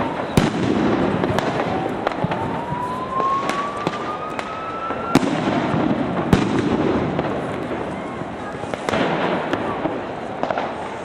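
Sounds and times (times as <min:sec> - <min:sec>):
rising firework whistle: 0:00.0 - 0:08.2
firecracker bangs: 0:00.0 - 0:11.0.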